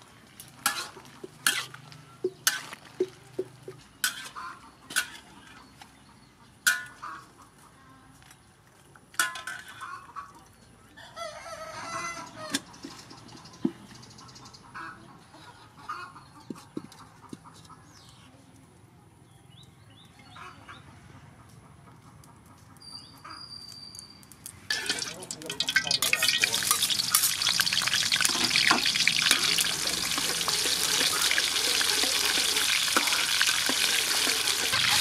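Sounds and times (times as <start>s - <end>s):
chickens clucking: 0.4s - 8.0s, 9.5s - 18.4s, 20.1s - 23.4s, 24.7s - 35.0s
rooster crowing: 11.0s - 12.6s.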